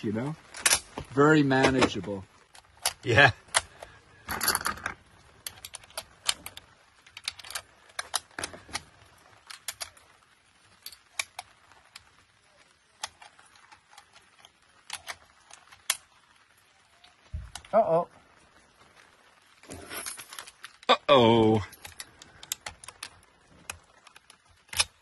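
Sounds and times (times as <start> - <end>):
metallic clatter: 4.2 - 6.6.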